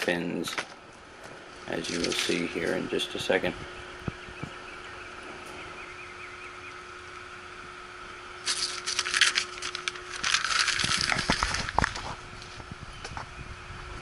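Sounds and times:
faint steady hum: 0.0 - 14.0
paper and plastic rustling: 1.7 - 2.8, 8.4 - 12.7.

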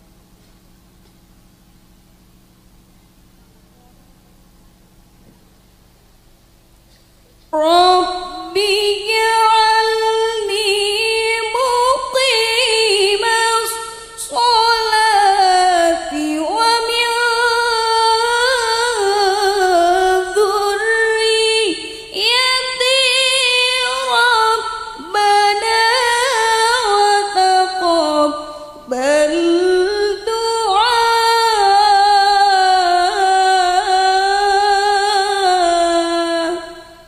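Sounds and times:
woman reciting melodically: 7.5 - 37.0.

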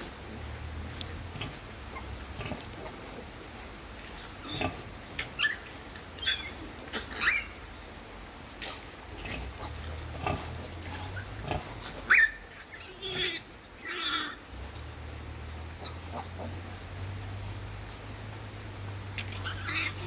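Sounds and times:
piglets squeaking: 11.5 - 14.2.

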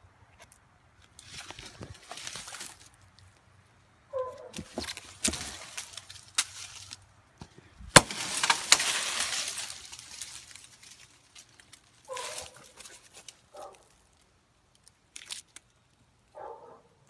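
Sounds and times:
crackling in dry leaves and brush: 0.3 - 17.0
wood cracking and snapping: 4.4 - 7.1, 7.9 - 16.0.

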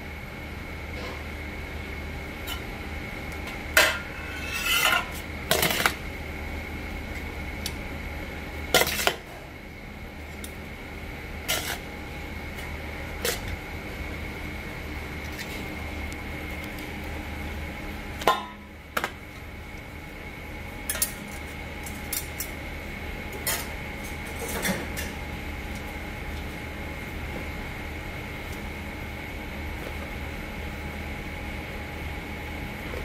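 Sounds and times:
steady background hum: 0.0 - 33.0.

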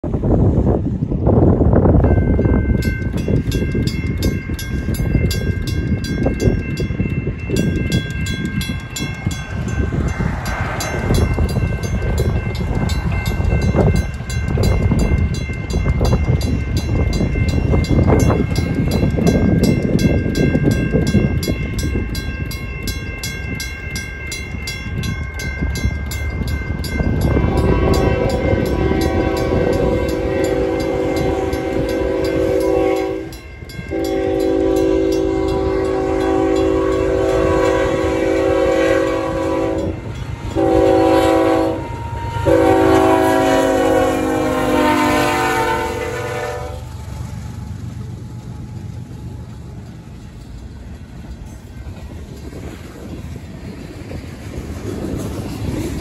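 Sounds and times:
wind buffeting microphone: 0.0 - 56.0
mechanical crossing bell striking: 2.0 - 37.7
electronic crossing bell: 2.0 - 41.8
locomotive horn: 27.2 - 47.0.

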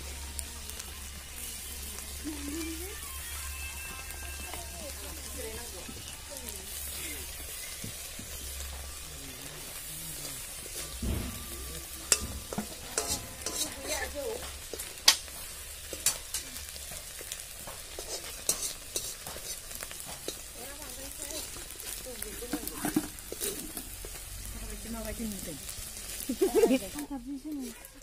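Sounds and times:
leaves sizzling in a wok: 0.0 - 28.0
metal spoon scraping a pan: 3.8 - 24.4.

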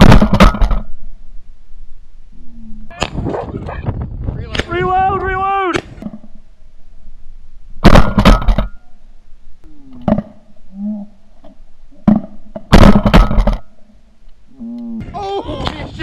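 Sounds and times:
loud bangs: 7.8 - 8.8, 12.1 - 13.6.

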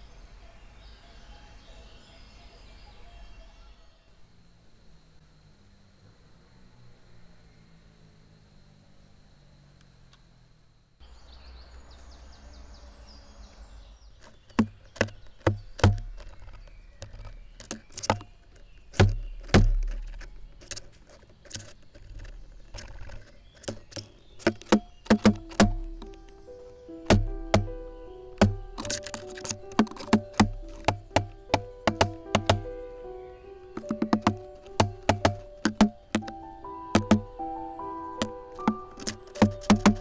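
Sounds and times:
sharp knocks with dull thuds: 14.5 - 20.9, 21.5 - 33.1, 33.7 - 40.0
plucked-string music: 23.8 - 40.0.

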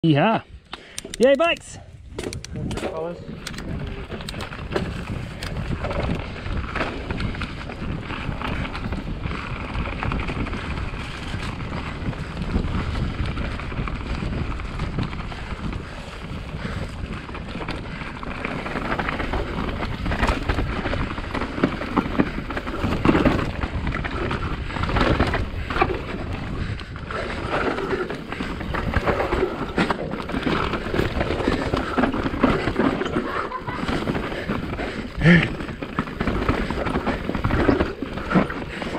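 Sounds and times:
wind noise on microphone: 0.5 - 38.9
bike tyres on dirt: 0.8 - 38.9
bike rattling over bumps: 2.0 - 38.9.

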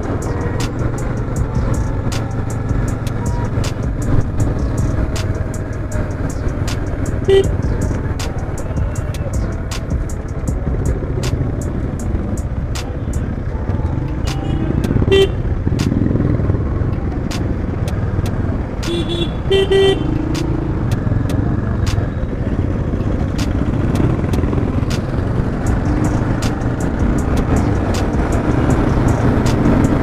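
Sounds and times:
motorcycle engine and wind: 0.0 - 30.0
vehicle horn toots: 7.3 - 7.6, 14.3 - 15.5, 18.9 - 20.2.

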